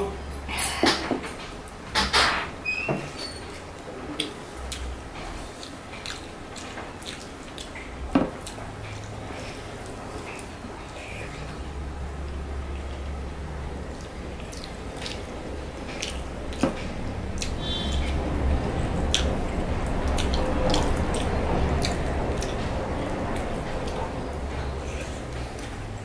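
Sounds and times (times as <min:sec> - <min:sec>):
steady low hum: 0:03.5 - 0:26.0
chewing with wet mouth clicks: 0:03.8 - 0:26.0
wet squelching of food mixed by hand: 0:03.8 - 0:26.0.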